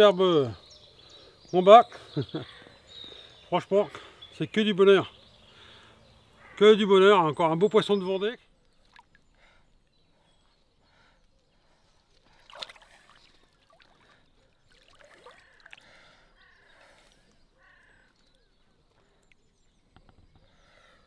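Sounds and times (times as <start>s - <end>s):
water sloshing and lapping: 8.6s - 9.4s, 11.8s - 19.8s
small splash: 12.4s - 15.9s.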